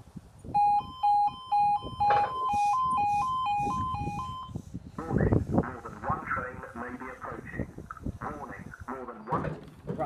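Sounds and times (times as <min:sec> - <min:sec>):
level crossing alarm beeping: 0:00.6 - 0:04.6.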